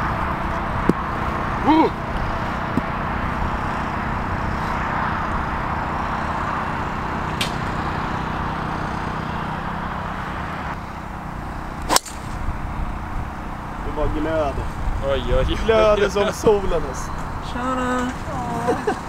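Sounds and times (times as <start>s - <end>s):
outdoor background noise: 0.0s - 19.0s
golf club striking ball: 7.4s - 7.8s, 11.8s - 12.5s.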